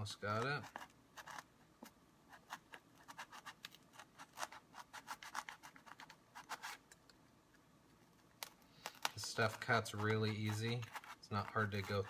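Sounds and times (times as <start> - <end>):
blade sawing through foam: 9.4 - 12.0.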